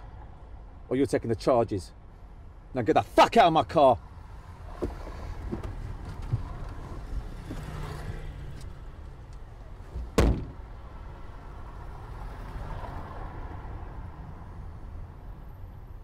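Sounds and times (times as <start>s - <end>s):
car door knocks: 9.9s - 10.6s
car door slamming shut: 9.9s - 10.6s.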